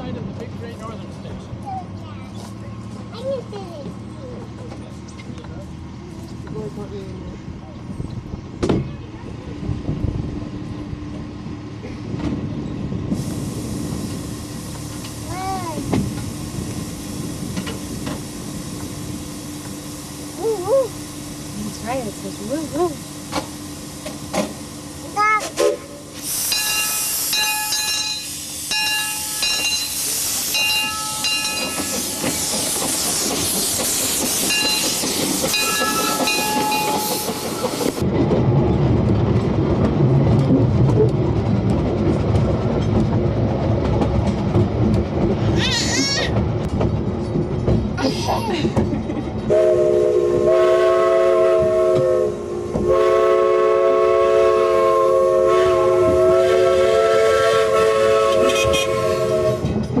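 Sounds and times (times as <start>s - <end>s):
train rumble and wheel clatter: 0.0s - 60.0s
steam locomotive hissing: 13.0s - 38.1s, 48.0s - 60.0s
train chord whistle: 49.5s - 59.7s.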